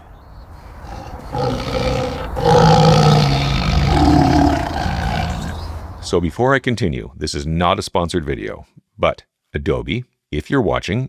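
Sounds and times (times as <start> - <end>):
tiger growling and roaring: 0.6 - 5.8.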